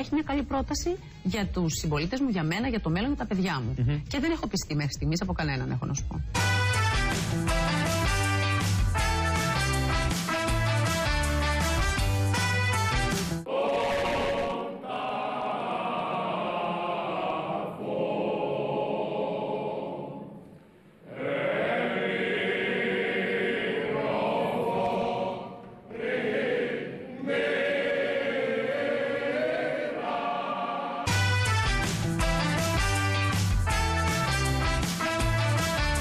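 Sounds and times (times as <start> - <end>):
men singing a hymn: 13.5 - 20.2.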